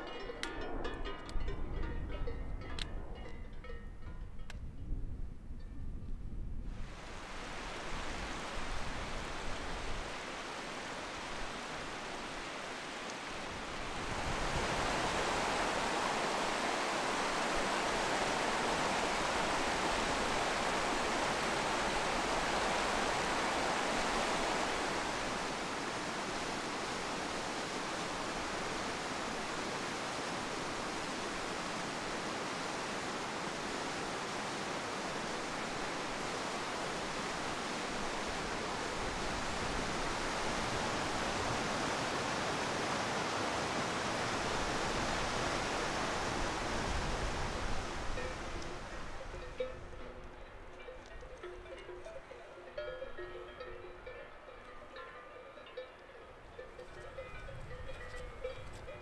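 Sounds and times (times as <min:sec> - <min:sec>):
stream rushing over rocks: 0:06.8 - 0:50.4.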